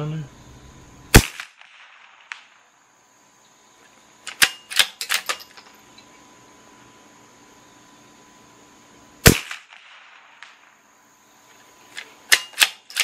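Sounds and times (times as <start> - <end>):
rifle shot: 1.1 - 2.7, 9.2 - 10.8, 12.3 - 13.0
rifle bolt metallic clicks: 4.3 - 5.7, 11.9 - 13.0.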